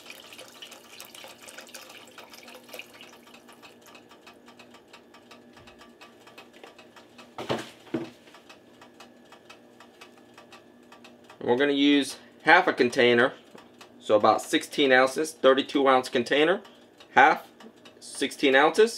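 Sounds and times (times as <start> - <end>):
broth trickling into a pot: 0.0 - 4.0
sharp knocks of cartons: 7.4 - 8.1.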